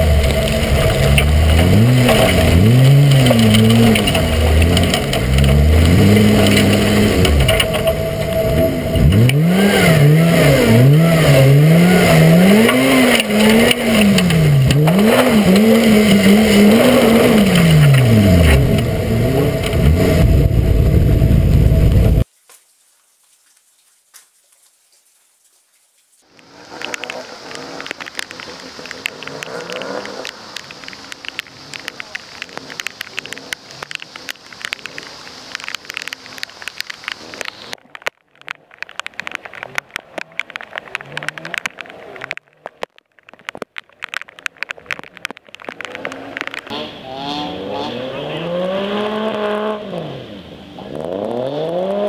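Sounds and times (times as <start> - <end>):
rally car engine revving: 0.0 - 22.2, 26.6 - 34.0, 45.0 - 52.0
rush of tyre mud and water: 0.0 - 52.0.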